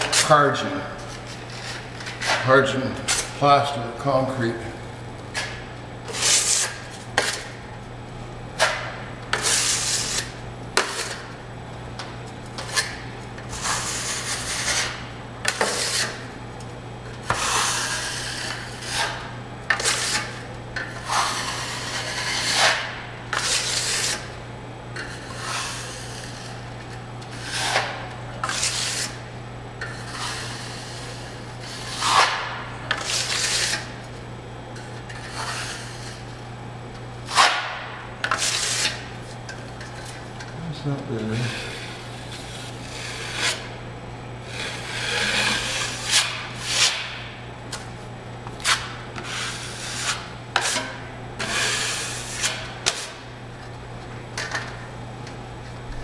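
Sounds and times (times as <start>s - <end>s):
steady low hum: 0.0s - 56.0s
trowel scraping joint compound: 5.4s - 7.5s, 8.6s - 11.3s, 12.6s - 16.3s, 17.2s - 24.3s, 25.0s - 26.6s, 27.3s - 29.2s, 29.8s - 34.0s, 35.1s - 36.2s, 37.3s - 39.1s, 41.4s - 43.7s, 44.4s - 47.2s, 48.6s - 53.2s.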